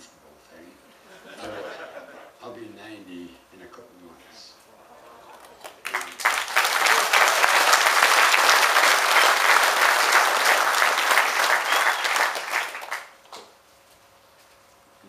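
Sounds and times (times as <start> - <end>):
audience applauding: 5.0 - 13.2.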